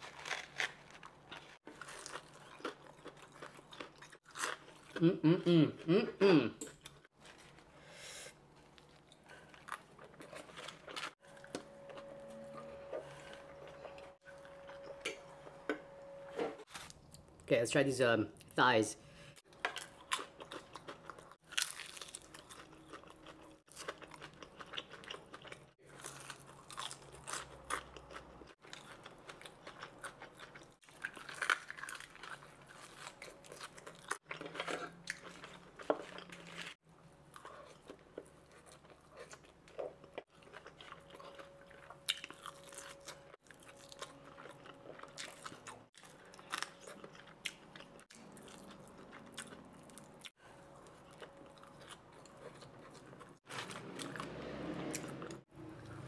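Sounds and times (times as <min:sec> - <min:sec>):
chewing: 0:19.7 - 0:54.3
fried chicken crunching: 0:19.8 - 0:36.6.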